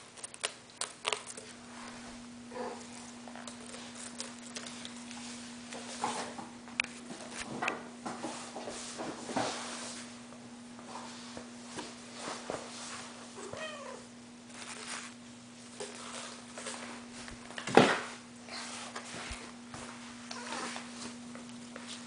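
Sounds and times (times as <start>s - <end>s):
cat meowing: 13.4s - 14.1s.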